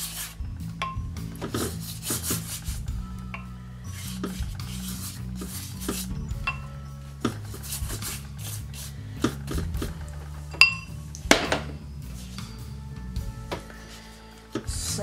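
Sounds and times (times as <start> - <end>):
pastry brush rasping: 0.0 - 0.4, 1.4 - 3.0, 3.9 - 10.0.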